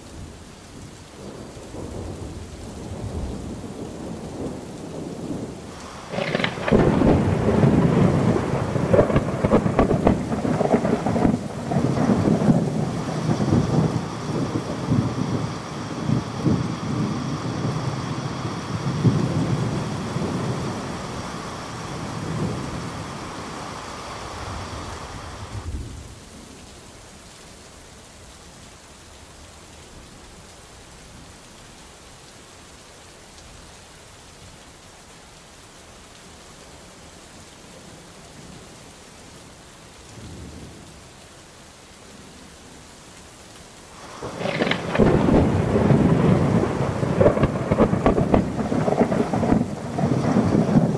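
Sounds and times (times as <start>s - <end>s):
rain falling: 0.0s - 50.9s
rolling thunder: 1.2s - 26.1s, 44.0s - 50.9s.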